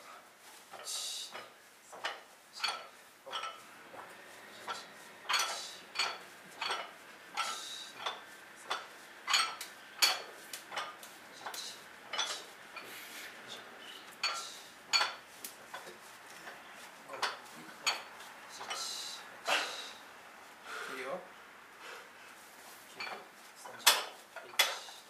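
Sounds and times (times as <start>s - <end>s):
barbell plates clinking: 1.4s - 12.9s, 14.1s - 15.8s.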